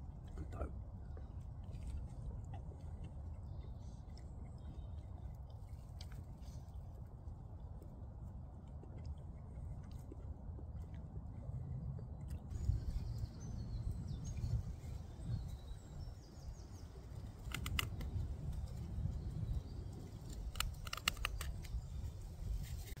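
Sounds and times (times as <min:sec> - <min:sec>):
wind rumble: 0:06.8 - 0:23.0.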